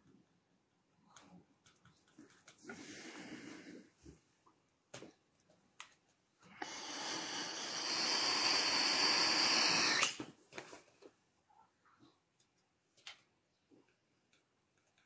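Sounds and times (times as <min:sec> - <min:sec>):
rushing air hiss: 0:06.6 - 0:10.2.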